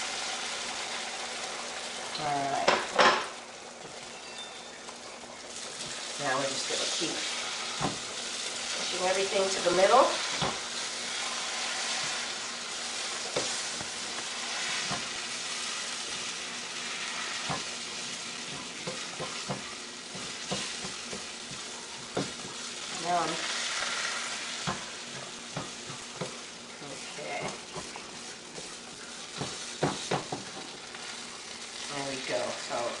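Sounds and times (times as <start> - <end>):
eggs sizzling in a frying pan: 0.0 - 33.0
spatula tapping and scraping: 13.1 - 16.3, 18.4 - 22.7, 24.6 - 31.1.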